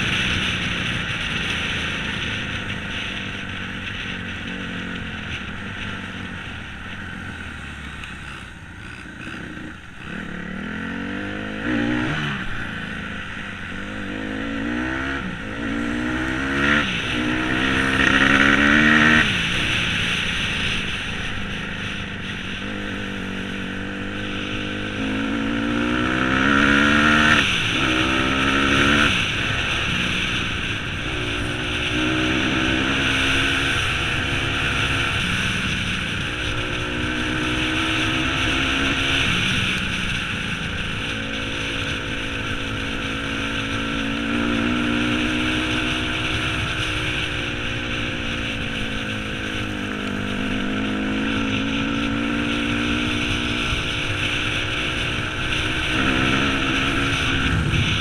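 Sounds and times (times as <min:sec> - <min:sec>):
dirt bike engine revving: 0:00.0 - 0:58.0
wind noise: 0:00.0 - 0:58.0.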